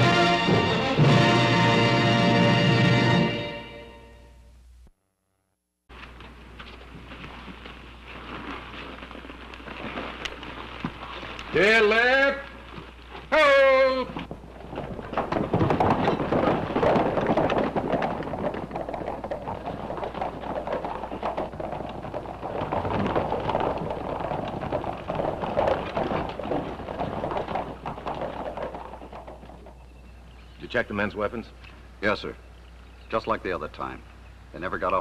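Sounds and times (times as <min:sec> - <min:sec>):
horses galloping on dirt: 0:00.0 - 0:03.5, 0:05.9 - 0:35.0.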